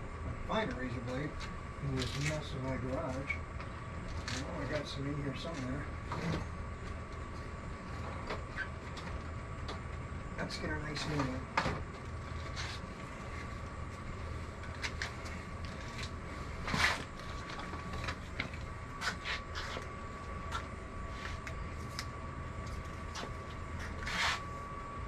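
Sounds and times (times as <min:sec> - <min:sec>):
low hum: 0:00.0 - 0:25.0
loud scrape: 0:24.0 - 0:24.4.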